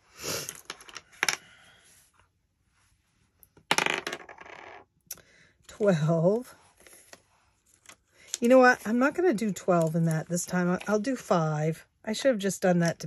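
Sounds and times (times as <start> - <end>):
dice clattering on desk: 0.6 - 1.4, 3.7 - 4.8.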